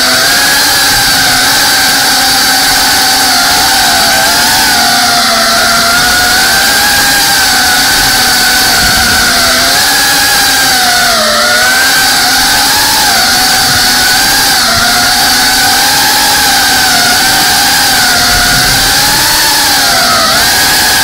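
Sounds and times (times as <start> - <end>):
drone propellers whining: 0.0 - 21.0.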